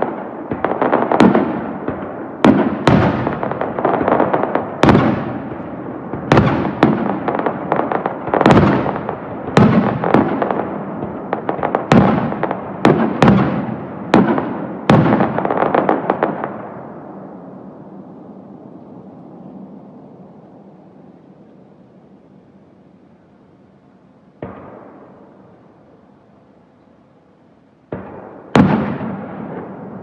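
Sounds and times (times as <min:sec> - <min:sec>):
faint rumble: 0:16.4 - 0:28.5.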